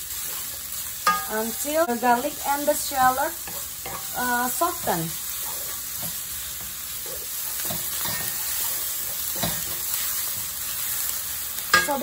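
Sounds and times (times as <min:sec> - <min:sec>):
shallots sizzling in hot oil: 0:00.0 - 0:12.0
wooden spatula scraping a wok: 0:02.7 - 0:12.0.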